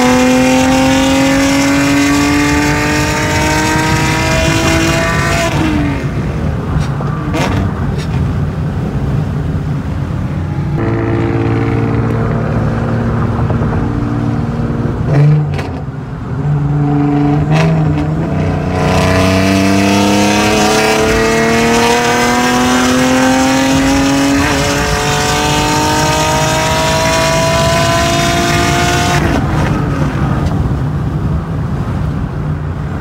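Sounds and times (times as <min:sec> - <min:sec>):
car engine revving: 0:00.0 - 0:30.5.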